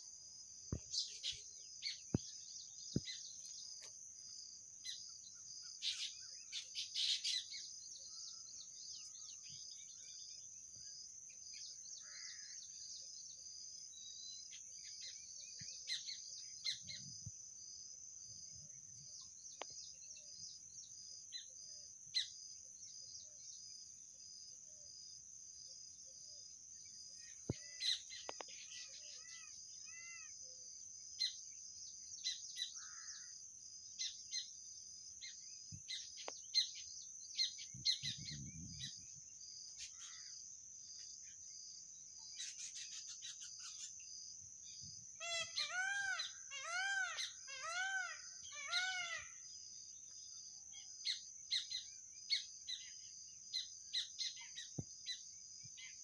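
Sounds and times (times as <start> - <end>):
high-pitched insect hum: 0.0 - 56.0
birds chirping: 0.7 - 4.0, 35.2 - 40.4.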